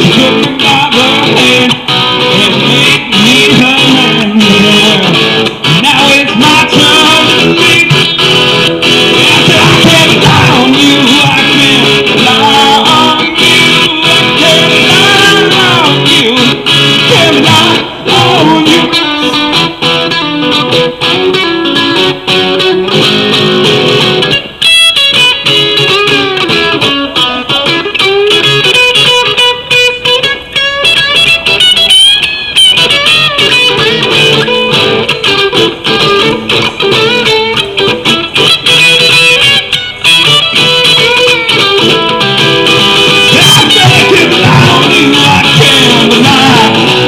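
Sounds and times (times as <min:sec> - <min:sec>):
person singing: 0:00.0 - 0:19.9, 0:40.9 - 0:47.0
strummed guitar: 0:00.0 - 0:47.0.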